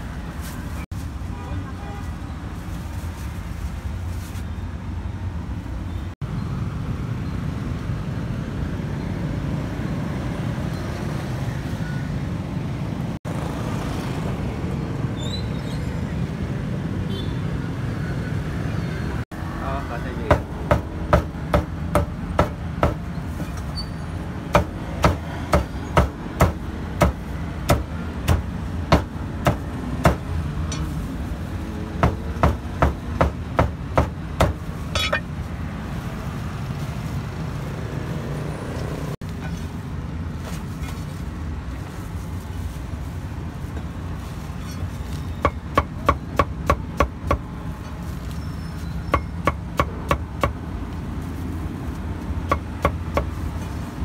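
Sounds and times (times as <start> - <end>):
cleaver chopping meat: 20.3 - 23.0, 24.6 - 30.3, 32.0 - 34.6, 45.5 - 47.4, 52.5 - 53.3.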